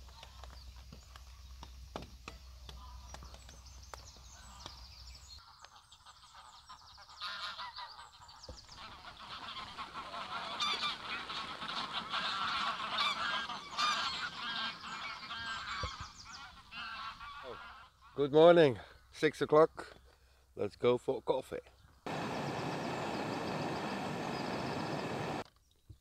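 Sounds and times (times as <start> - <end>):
geese honking: 5.4 - 18.2, 22.1 - 25.4.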